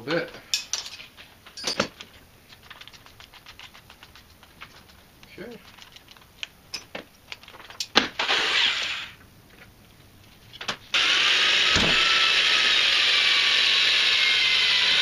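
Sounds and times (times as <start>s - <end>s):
cordless drill drilling metal: 8.2s - 9.2s, 10.9s - 15.0s.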